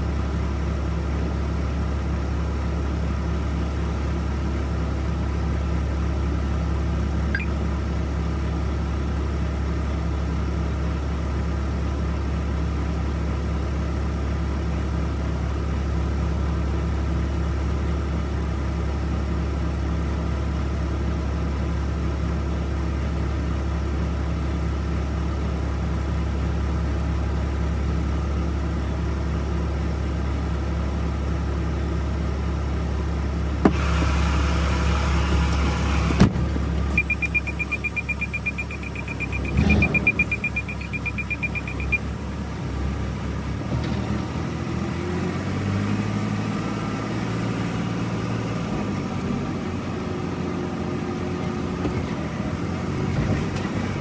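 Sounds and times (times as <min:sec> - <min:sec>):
diesel truck engine idling: 0:00.0 - 0:53.0.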